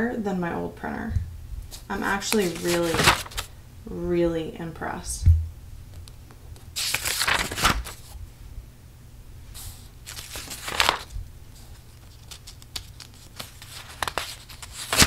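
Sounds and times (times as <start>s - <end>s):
light paper rustles: 1.7s - 3.5s, 6.7s - 8.2s, 9.6s - 15.0s
paper pages turning: 1.7s - 3.5s, 6.6s - 8.2s, 9.6s - 15.0s.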